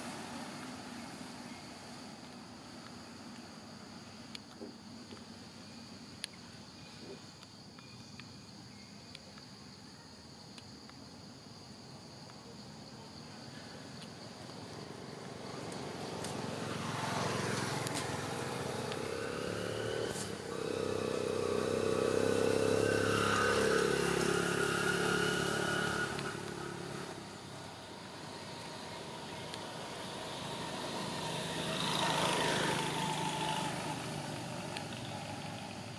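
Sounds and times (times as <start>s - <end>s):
high insect drones: 0.0s - 35.9s
vehicle engine passing: 14.6s - 35.9s.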